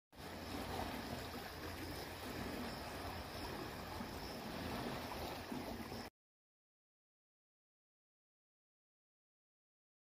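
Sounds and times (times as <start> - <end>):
even outdoor hiss: 0.2 - 6.1.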